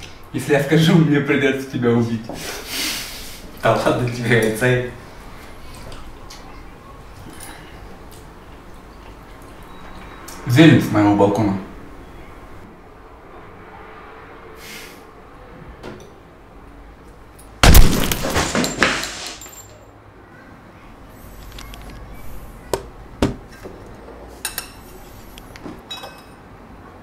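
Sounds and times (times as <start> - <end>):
pistol shot: 17.6 - 18.4
knocks and clatter: 17.6 - 19.8
cutlery clinking against dishes: 24.4 - 25.0, 25.8 - 26.4.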